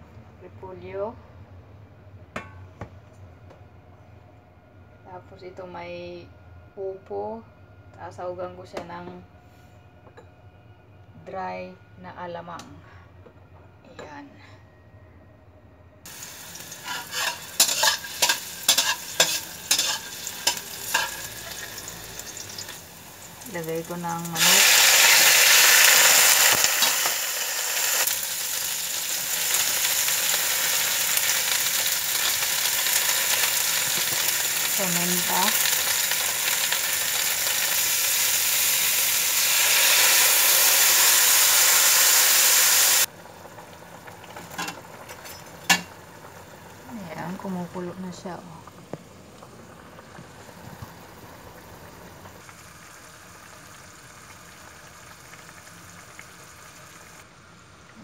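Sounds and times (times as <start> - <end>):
garlic and onion sizzling in oil: 16.1 - 58.0
metal spatula scraping a wok: 16.7 - 21.7.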